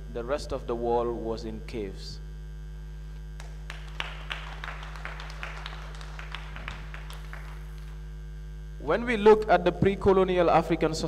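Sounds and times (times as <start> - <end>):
electrical mains hum: 0.0 - 11.0
hands clapping: 3.4 - 8.0.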